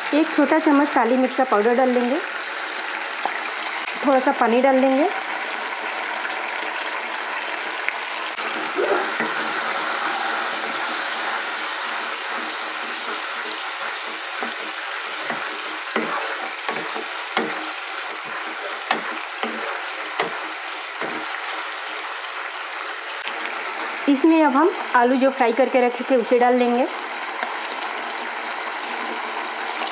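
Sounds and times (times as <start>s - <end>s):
sauce sizzling in a pan: 0.0s - 29.9s
spatula scraping a pan: 8.4s - 22.1s.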